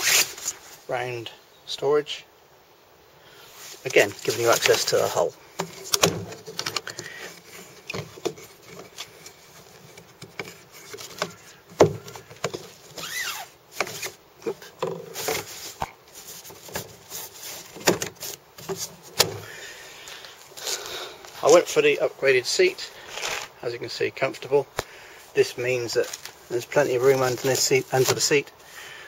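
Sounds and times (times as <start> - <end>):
plastic hatch lid clicking and rubbing: 3.9 - 19.4.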